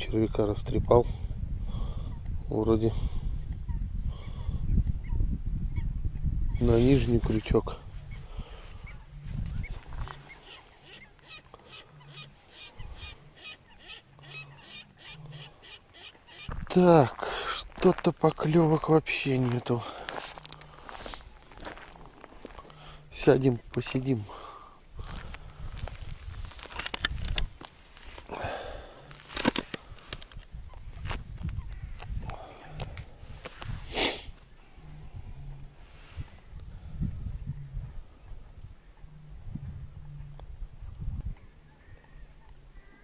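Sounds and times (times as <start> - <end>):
fishing gear clicks and knocks: 26.4 - 28.3, 29.0 - 30.6.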